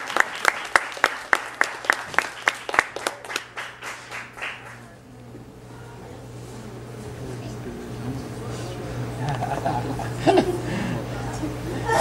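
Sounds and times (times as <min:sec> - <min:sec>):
audience applauding: 0:00.0 - 0:05.0.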